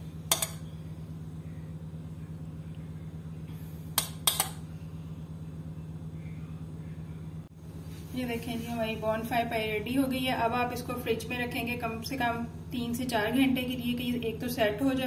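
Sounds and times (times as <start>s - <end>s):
metal spoon clinking dish: 0.3s - 0.7s, 4.0s - 4.6s.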